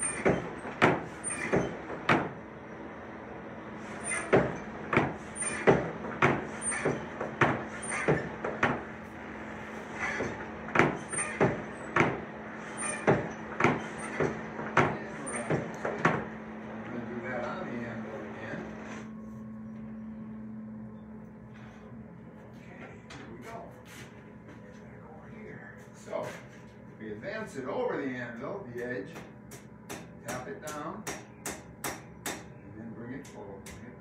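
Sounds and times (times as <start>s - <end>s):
bellows squeak: 0.0s - 1.9s, 3.8s - 5.9s, 6.5s - 8.4s, 9.8s - 12.0s, 12.6s - 14.4s
forge bellows pumping: 0.0s - 19.4s
steady low hum: 0.0s - 34.0s.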